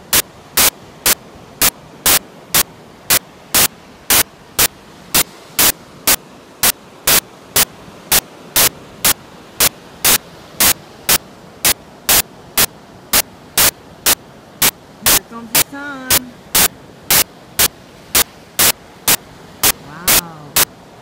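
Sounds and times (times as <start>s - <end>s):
steady hiss: 0.0s - 21.0s
sharp digital pops: 5.6s - 15.7s, 16.6s - 20.7s
person speaking: 15.0s - 16.4s, 19.6s - 20.7s.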